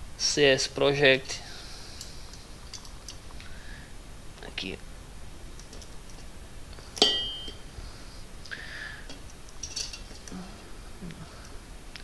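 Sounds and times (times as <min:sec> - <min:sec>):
sharp metallic clink: 0:07.0 - 0:07.6.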